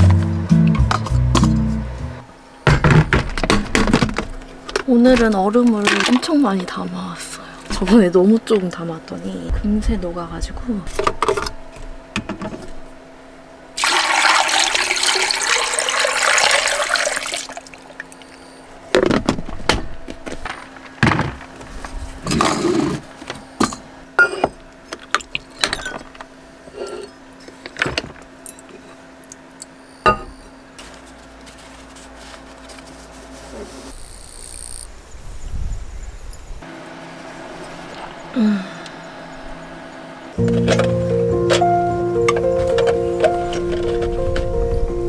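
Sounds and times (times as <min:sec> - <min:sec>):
water pouring into jug: 0:13.8 - 0:18.3.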